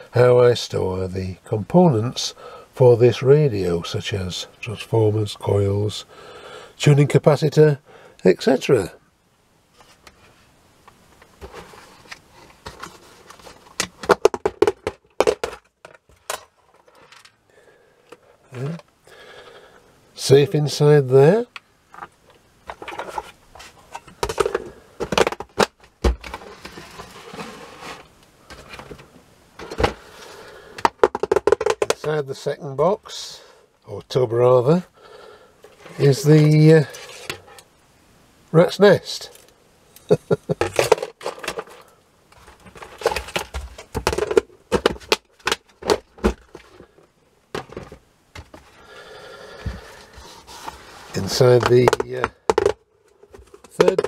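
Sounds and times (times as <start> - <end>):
plastic tubs clacking and knocking: 11.1 - 17.3, 21.9 - 30.0, 30.7 - 32.2, 40.4 - 54.0.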